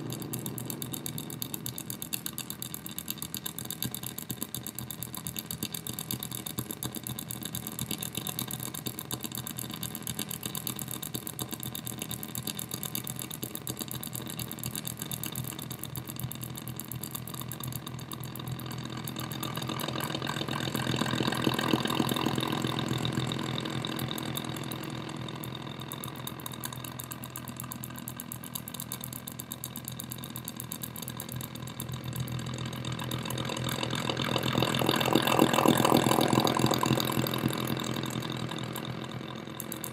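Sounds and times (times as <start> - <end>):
buzzing electronic pulse: 30.7 - 39.9.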